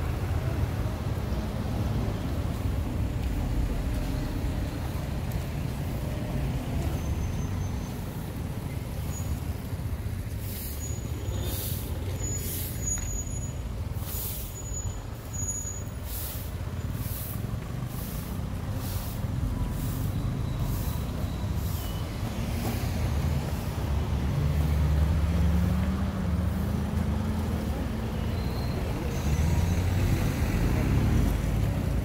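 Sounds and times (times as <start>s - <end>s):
traffic rumble: 0.0s - 32.0s
short hissing sounds: 10.4s - 13.0s, 14.0s - 22.0s.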